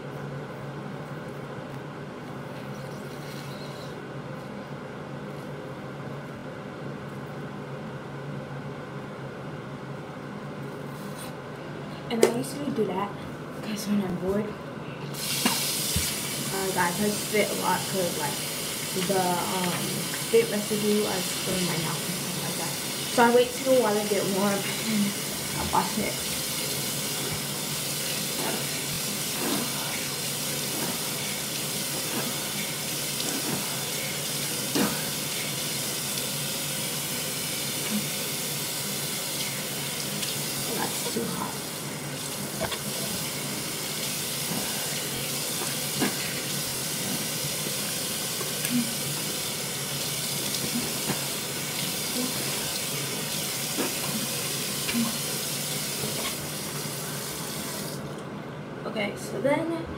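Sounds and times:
tap running into a sink: 0:15.3 - 0:16.4.

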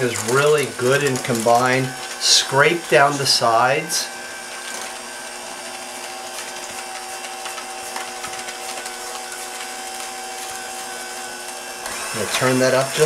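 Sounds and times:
electric hand mixer running: 0:00.0 - 0:13.0.

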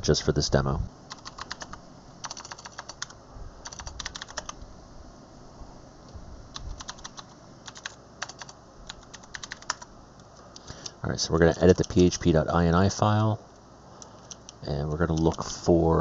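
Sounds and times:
keyboard typing: 0:01.1 - 0:04.6, 0:06.5 - 0:09.9, 0:11.4 - 0:12.3, 0:14.2 - 0:15.6.

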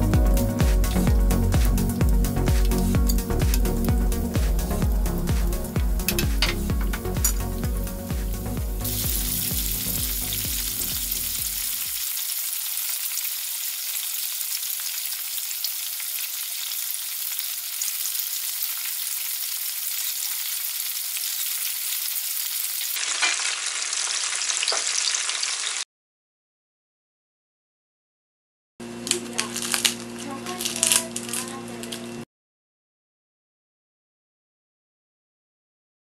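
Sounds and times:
background music: 0:00.0 - 0:12.0
oil sizzling deep-frying: 0:00.6 - 0:25.9.

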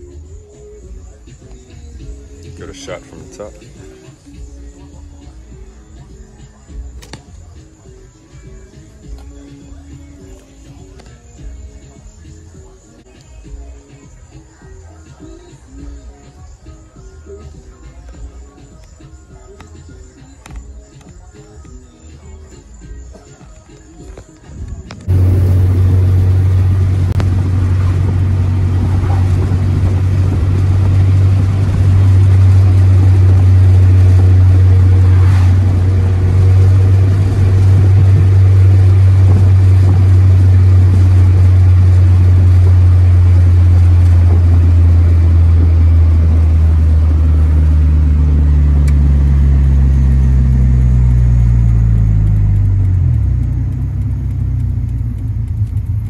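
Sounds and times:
road noise: 0:00.0 - 0:13.3, 0:24.3 - 0:56.0
car engine from inside: 0:25.0 - 0:56.0.

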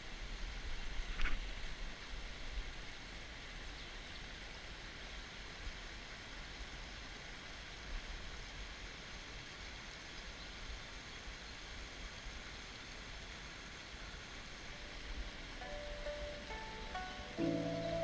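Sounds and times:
stream rushing over rocks: 0:00.1 - 0:18.0.

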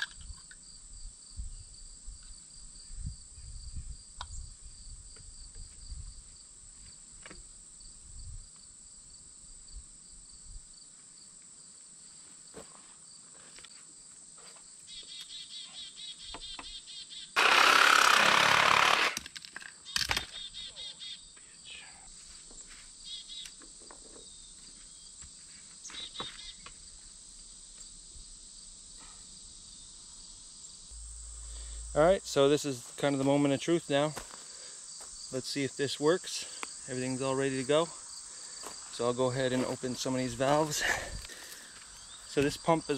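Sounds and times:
crickets trilling: 0:00.0 - 0:42.9
cordless drill running: 0:17.4 - 0:19.3.

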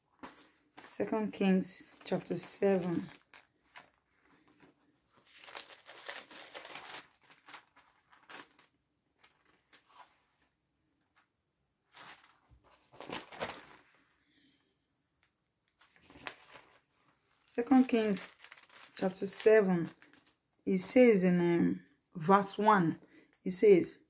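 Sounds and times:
pages turning and rustling: 0:00.1 - 0:01.0, 0:01.8 - 0:10.6, 0:11.9 - 0:14.1, 0:15.7 - 0:20.4.

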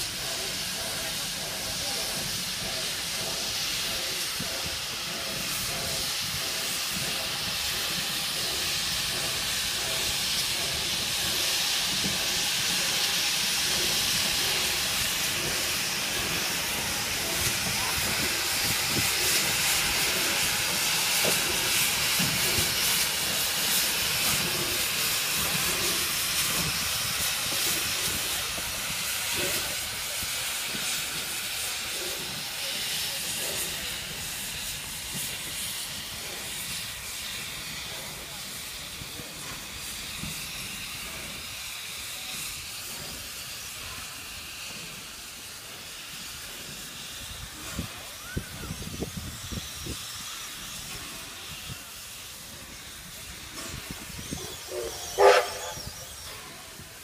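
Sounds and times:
steam locomotive hissing: 0:00.0 - 0:57.0.

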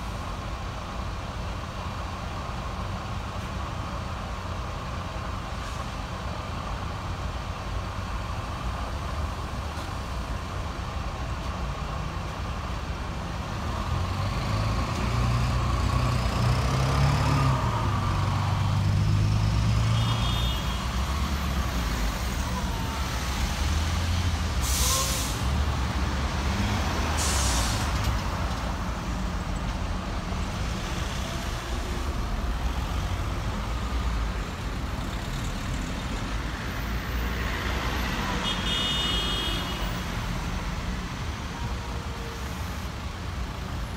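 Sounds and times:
bus engines rumbling: 0:00.0 - 0:43.9
bus air brakes hissing: 0:05.5 - 0:06.0, 0:24.5 - 0:25.5, 0:27.0 - 0:28.1.

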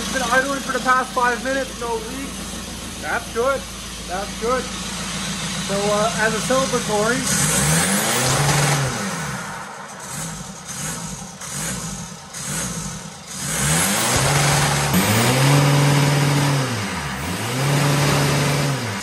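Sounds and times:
diesel engine revving: 0:00.0 - 0:19.0.

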